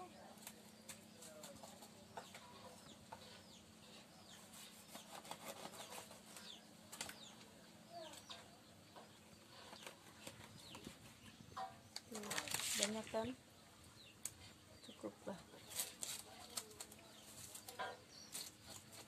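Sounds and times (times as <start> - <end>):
knife scaling fish: 4.5 - 6.4.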